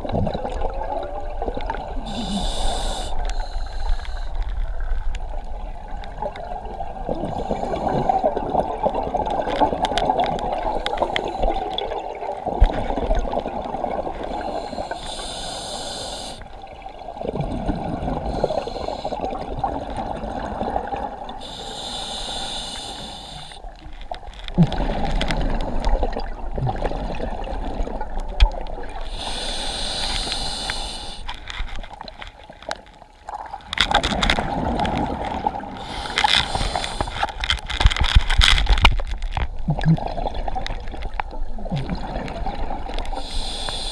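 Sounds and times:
hissing regulator inhales: 2.1s - 4.4s, 14.3s - 16.4s, 18.3s - 19.2s, 21.4s - 23.6s, 29.1s - 31.4s, 35.8s - 37.3s, 43.2s - 43.9s
bubbling exhales: 24.5s - 28.1s.

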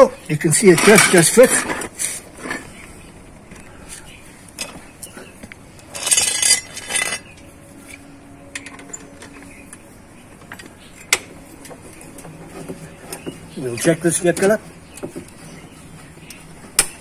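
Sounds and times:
metal clattering and scraping: 0.3s - 2.8s, 5.8s - 9.6s
metal clinks: 5.9s - 7.3s.

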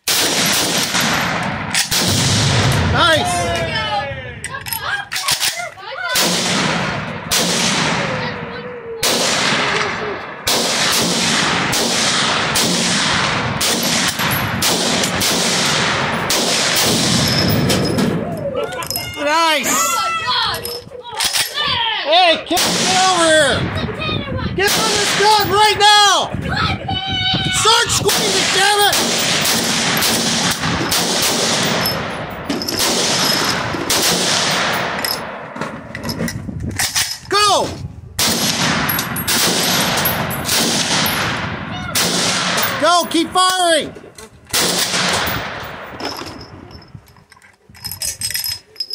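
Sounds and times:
rapid gunfire: 0.0s - 2.7s, 6.2s - 8.1s, 9.0s - 17.4s, 28.1s - 32.1s, 32.8s - 35.4s, 38.2s - 42.8s
rifle shots echoing: 0.0s - 3.5s, 5.2s - 18.3s, 22.5s - 23.8s, 24.6s - 25.8s, 28.1s - 35.9s, 38.2s - 43.4s, 44.5s - 46.5s
explosions: 0.1s - 3.8s.

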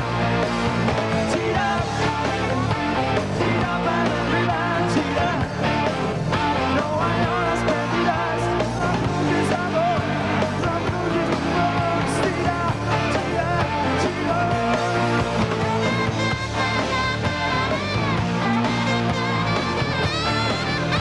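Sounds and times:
drums: 0.0s - 21.0s
electric guitars: 0.0s - 21.0s
keyboards: 0.0s - 21.0s
man singing lead vocal: 0.9s - 15.8s.

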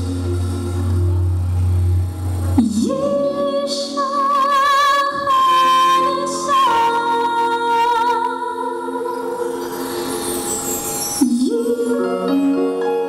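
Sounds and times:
singers holding long notes: 0.0s - 13.0s.

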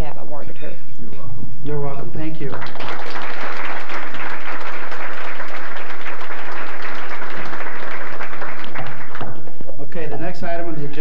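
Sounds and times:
audience applauding: 2.5s - 9.5s.

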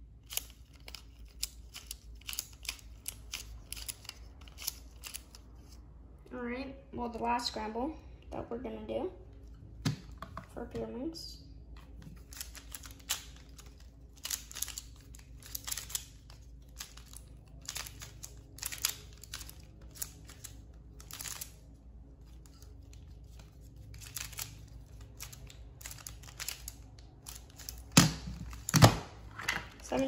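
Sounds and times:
puzzle cube plastic clicking: 0.2s - 5.4s, 12.2s - 21.6s.

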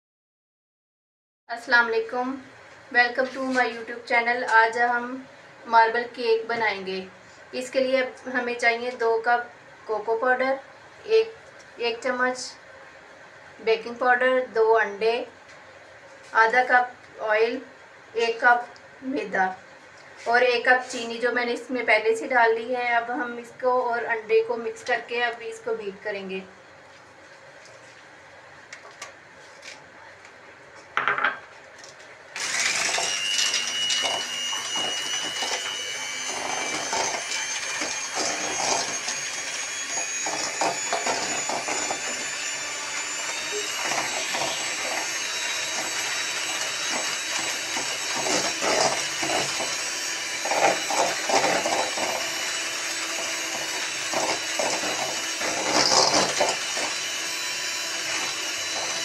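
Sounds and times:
electric hand mixer running: 32.4s - 59.0s.

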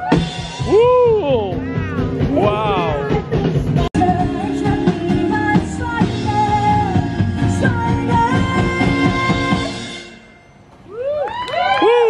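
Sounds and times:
rock band playing: 0.0s - 10.2s
woman singing: 2.9s - 9.9s.

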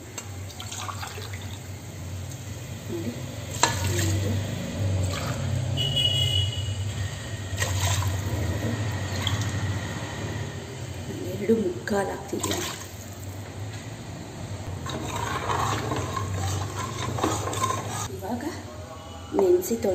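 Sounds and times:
water pouring into a pot: 0.4s - 1.8s, 5.0s - 5.7s, 7.6s - 8.3s, 9.0s - 9.6s, 14.7s - 17.8s.

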